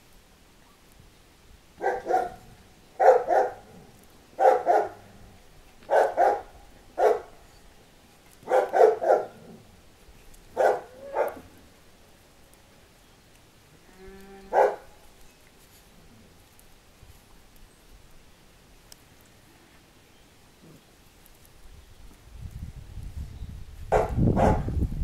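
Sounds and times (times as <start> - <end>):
puppy barking: 1.8 - 2.4, 3.0 - 3.7, 4.4 - 5.0, 5.9 - 7.3, 8.4 - 9.4, 10.6 - 11.4, 14.5 - 14.9, 23.9 - 24.7.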